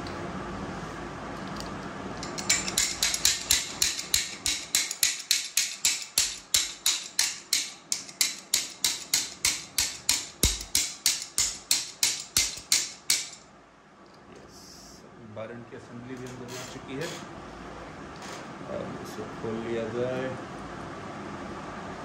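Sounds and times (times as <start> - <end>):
hammer tapping metal: 2.2 - 13.4.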